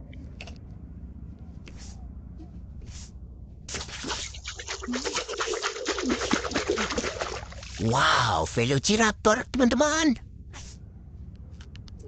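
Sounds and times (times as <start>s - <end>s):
water splashing and sloshing: 3.7s - 8.2s.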